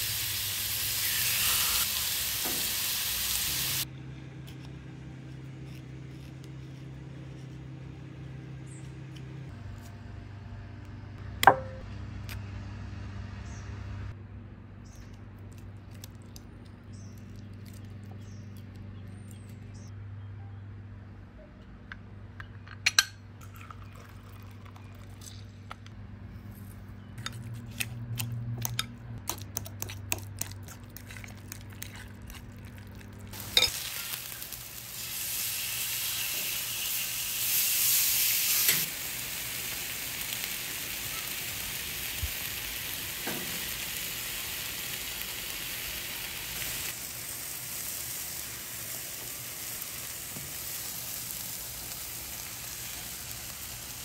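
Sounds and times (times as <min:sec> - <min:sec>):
chicken sizzling on griddle: 0:00.0 - 0:03.9, 0:33.3 - 0:54.0.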